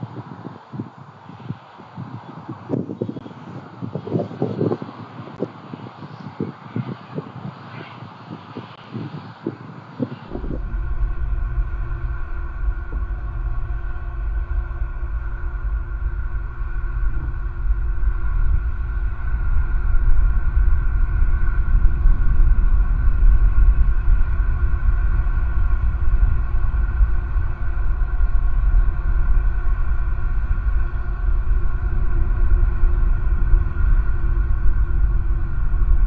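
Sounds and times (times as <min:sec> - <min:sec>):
low outdoor rumble: 0:07.6 - 0:36.0.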